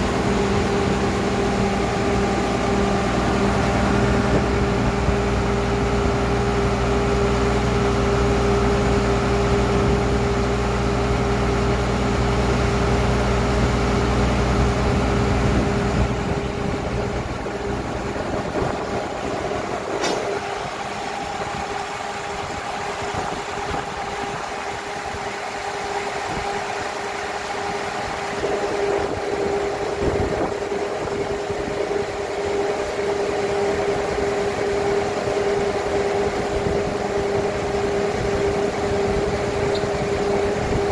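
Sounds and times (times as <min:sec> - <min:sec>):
drilling rig machine drone: 0:00.0 - 0:40.9
sharp click: 0:20.0 - 0:20.4.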